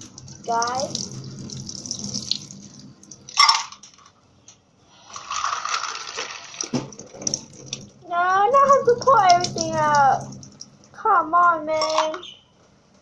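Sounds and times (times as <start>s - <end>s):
water sloshing and splashing: 0.0s - 3.7s, 6.1s - 11.0s.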